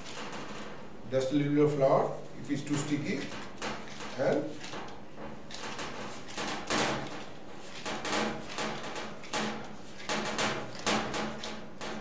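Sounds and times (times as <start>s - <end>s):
dough thudding against glass bowl: 2.1s - 12.0s.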